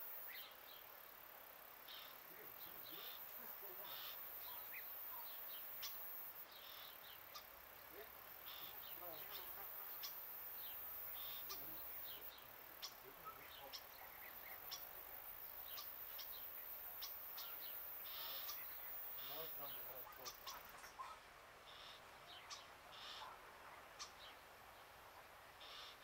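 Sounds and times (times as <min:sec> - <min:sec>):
insect buzzing: 0:00.0 - 0:13.1, 0:13.7 - 0:20.7
small birds chirping: 0:00.0 - 0:26.0.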